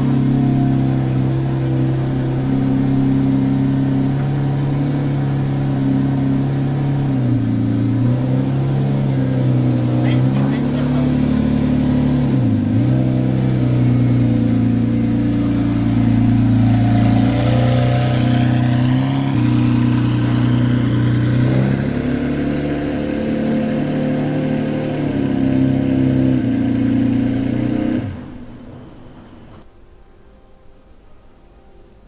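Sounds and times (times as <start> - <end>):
car engine idling: 0.0 - 29.6.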